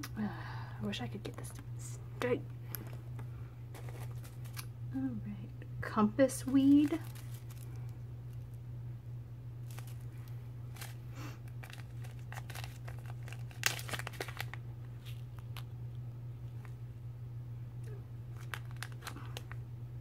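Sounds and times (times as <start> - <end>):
steady low hum: 0.0 - 20.0
plastic bag crinkling: 2.7 - 4.7, 6.4 - 8.5, 9.6 - 15.7, 18.3 - 19.6.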